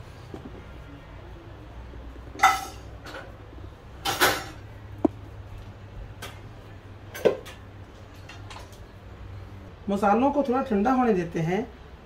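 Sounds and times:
dishes and utensils clinking: 2.4 - 3.4, 4.0 - 4.7.

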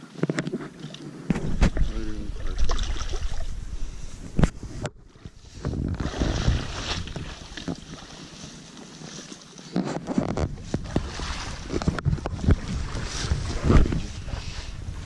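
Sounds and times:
boat hauled through water: 0.0 - 15.0
splashing steps in marsh: 2.5 - 3.5, 6.0 - 10.0.

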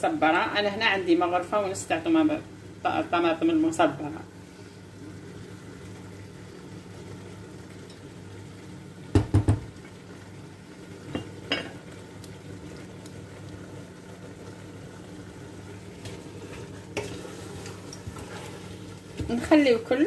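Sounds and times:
wooden spoon knocking on pot: 9.1 - 9.7.

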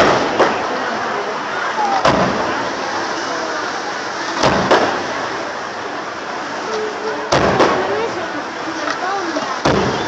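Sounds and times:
fireworks bursting: 0.0 - 1.0, 1.8 - 3.7, 4.3 - 5.6, 7.2 - 10.0.

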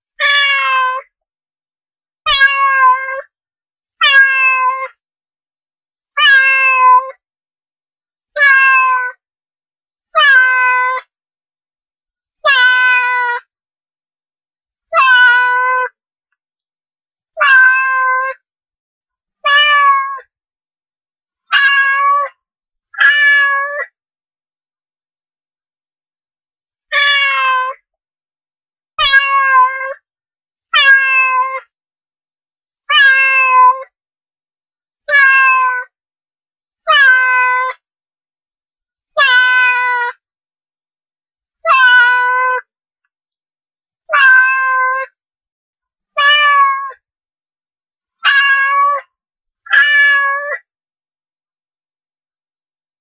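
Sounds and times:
cat meowing: 0.2 - 1.1, 2.3 - 3.3, 4.0 - 4.9, 6.2 - 7.2, 8.4 - 9.2, 10.2 - 11.1, 12.4 - 13.4, 14.9 - 16.0, 17.4 - 18.4, 19.4 - 20.2, 21.5 - 22.4, 23.0 - 23.9, 26.9 - 27.8, 29.0 - 30.0, 30.8 - 31.7, 32.9 - 33.9, 35.1 - 35.9, 36.9 - 37.8, 39.2 - 40.2, 41.6 - 42.7, 44.1 - 45.2, 46.2 - 47.0, 48.2 - 49.1, 49.7 - 50.7.

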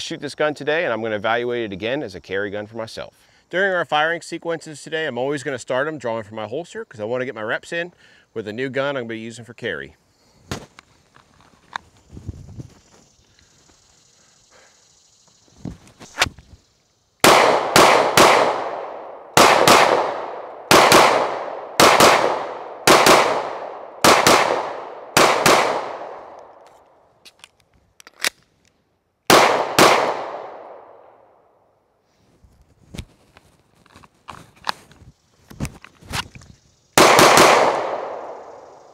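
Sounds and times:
pistol shots with echo: 17.2 - 26.5, 29.3 - 31.1, 37.0 - 38.8.

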